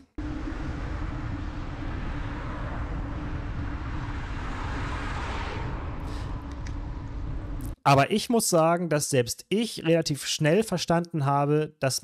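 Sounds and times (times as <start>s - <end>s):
road noise while cycling: 0.0s - 7.8s
wind rush: 0.0s - 7.8s
low steady hum: 0.0s - 8.3s.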